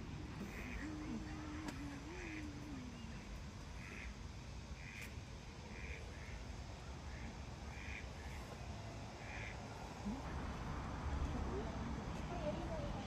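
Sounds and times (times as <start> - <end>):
steady low rumble: 0.0 - 13.0
ducks quacking faintly: 0.3 - 4.2, 4.8 - 8.6, 9.2 - 10.4.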